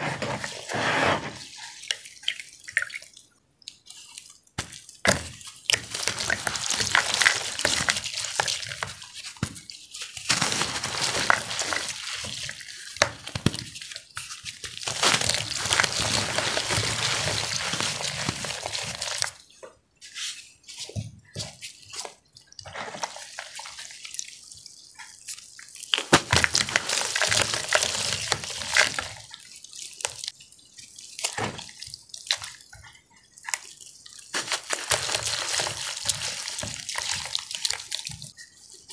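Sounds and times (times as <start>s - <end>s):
water dripping: 1.5s - 20.0s, 20.6s - 38.9s
hands crushing wet chalk: 3.8s - 19.4s, 25.0s - 30.4s, 34.3s - 38.4s.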